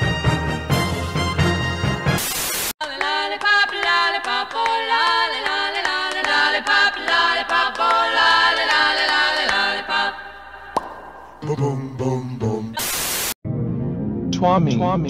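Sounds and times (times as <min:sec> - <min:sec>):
high-pitched a cappella singing: 0:02.8 - 0:10.8, 0:11.4 - 0:12.9.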